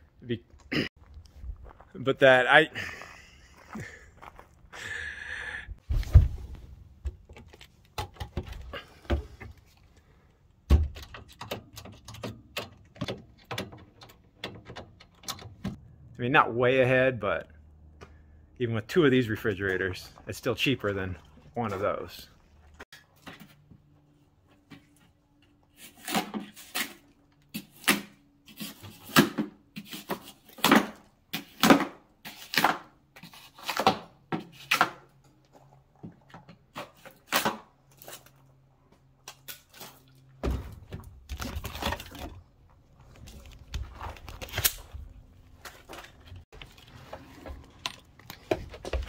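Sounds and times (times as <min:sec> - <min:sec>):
objects knocking and clunking: 0:05.8 - 0:09.8, 0:10.6 - 0:15.8, 0:45.5 - 0:49.0.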